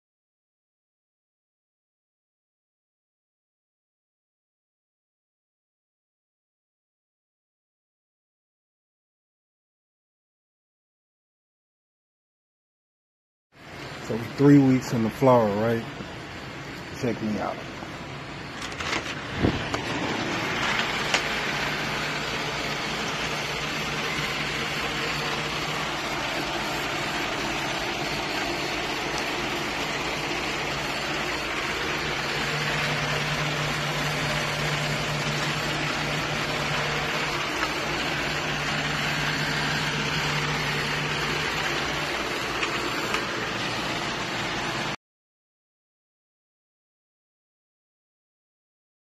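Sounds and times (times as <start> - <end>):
ventilation fans whirring: 13.6 - 45.0
low hum: 17.7 - 45.0.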